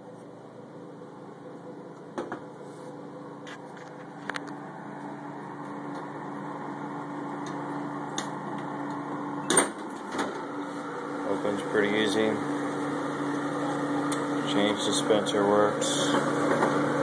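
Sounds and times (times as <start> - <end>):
vending machine humming: 0.0 - 17.0.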